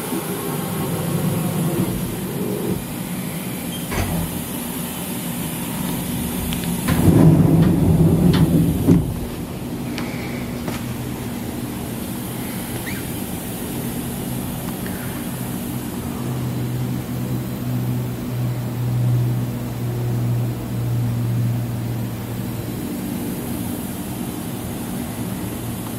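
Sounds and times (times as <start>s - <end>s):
high hiss: 0.0s - 17.6s
low machinery hum: 0.0s - 25.9s.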